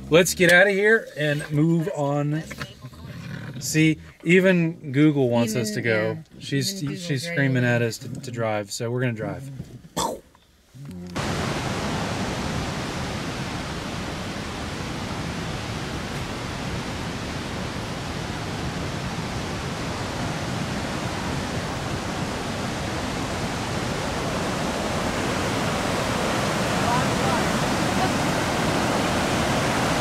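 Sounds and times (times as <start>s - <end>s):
river rapids roaring: 11.2s - 30.0s.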